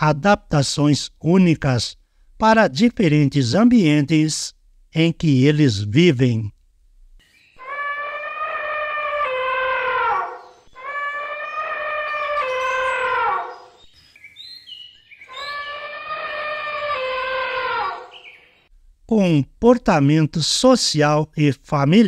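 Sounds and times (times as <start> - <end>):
elephant trumpeting: 7.6 - 13.8, 15.2 - 18.4
faint bird chirps: 10.3 - 18.7.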